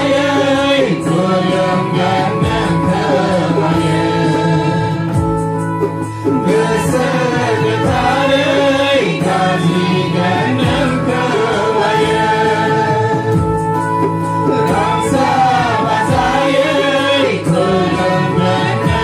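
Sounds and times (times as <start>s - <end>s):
group singing a hymn: 0.0s - 5.4s, 6.0s - 19.0s
electronic keyboard chords: 0.0s - 19.0s.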